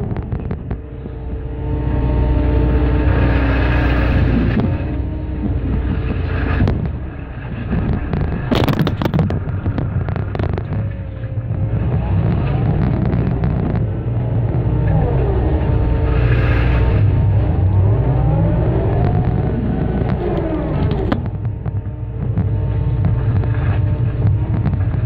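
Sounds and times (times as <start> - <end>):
excavator diesel engine and hydraulics: 0.0 - 25.0
concrete cracking and snapping: 6.1 - 13.9.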